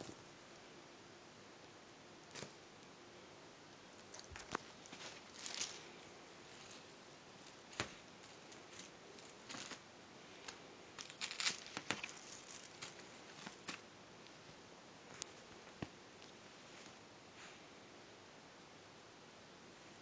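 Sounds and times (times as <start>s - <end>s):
cats scratching on cloth: 11.0s - 13.8s.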